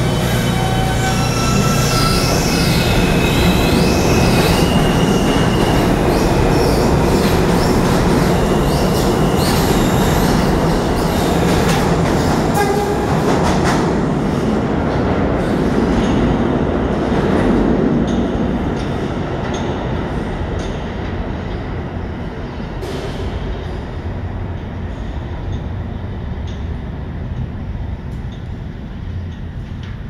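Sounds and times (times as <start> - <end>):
train wheel squeals: 0.0 - 11.8
train wheels rumbling on rail: 0.0 - 30.0.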